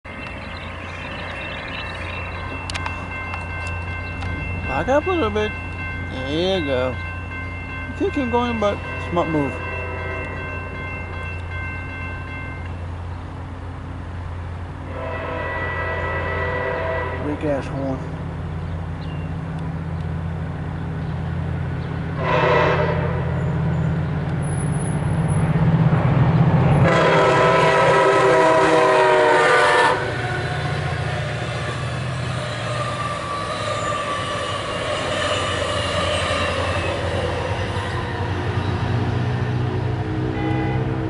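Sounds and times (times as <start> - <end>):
train rumbling: 0.0 - 41.0
train horn blasts: 9.5 - 10.4, 14.9 - 17.5, 22.2 - 23.6, 26.7 - 31.9, 40.2 - 41.0.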